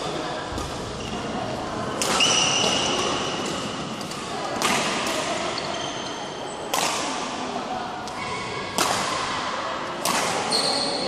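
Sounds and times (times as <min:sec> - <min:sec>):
badminton racket hitting shuttlecock: 0:02.0 - 0:05.5, 0:08.8 - 0:09.3, 0:10.0 - 0:10.6
shoes squeaking: 0:10.5 - 0:11.0.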